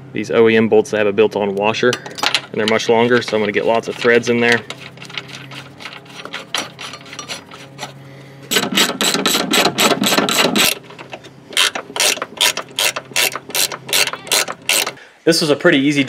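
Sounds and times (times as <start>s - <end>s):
ratcheting wrench clicking: 8.5s - 10.8s, 11.6s - 15.0s.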